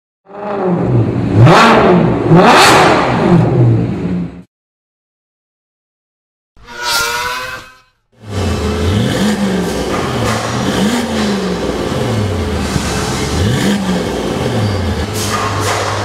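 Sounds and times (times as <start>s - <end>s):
car engine idling and revving: 0.3s - 4.4s, 8.2s - 16.0s.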